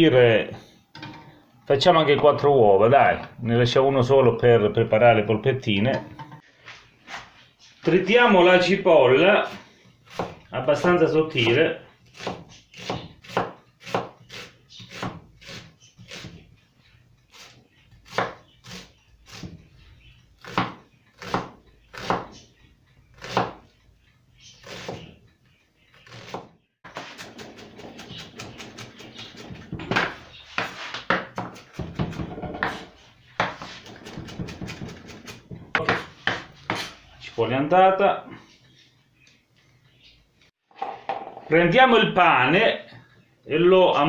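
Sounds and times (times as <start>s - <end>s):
knife chopping on wooden board: 12.2s - 16.4s, 18.1s - 19.6s, 20.4s - 22.4s, 23.2s - 23.6s, 26.0s - 36.9s.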